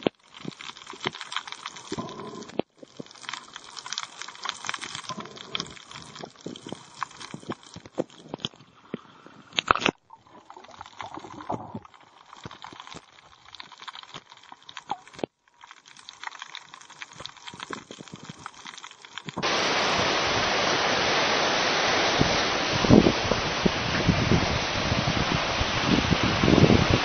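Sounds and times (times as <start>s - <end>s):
crackle of small clicks: 0.0s - 19.5s
underwater water bubbling: 0.0s - 21.1s.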